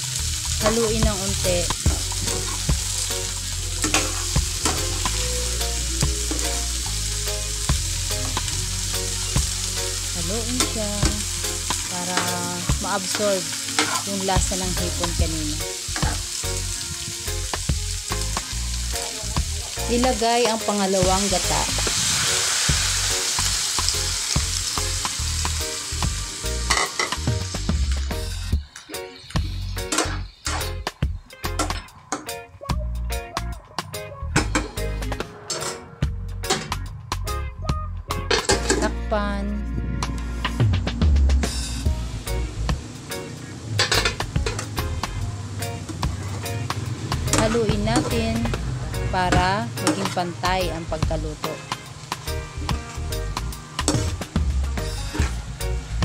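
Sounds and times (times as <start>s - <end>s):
food sizzling in a frying pan: 0.0s - 28.6s, 41.8s - 56.0s
metal utensil scraping a pan: 3.8s - 5.3s, 11.7s - 14.2s, 26.7s - 27.2s, 35.4s - 36.8s, 43.8s - 44.8s.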